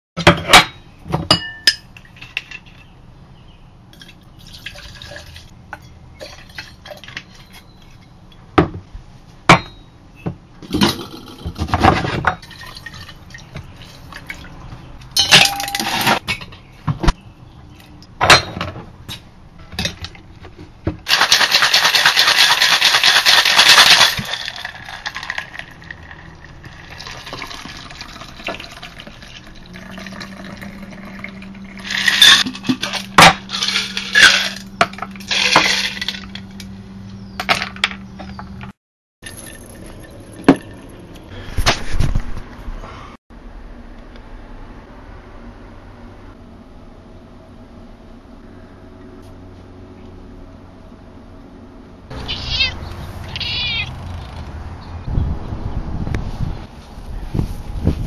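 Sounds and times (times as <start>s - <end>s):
bottles and metal tin clinking: 0.2s - 3.0s, 15.0s - 16.7s, 21.1s - 36.7s, 39.2s - 41.0s
ice rattling in shaker: 21.1s - 30.6s, 31.8s - 36.3s
drink pouring into a glass: 25.0s - 32.2s.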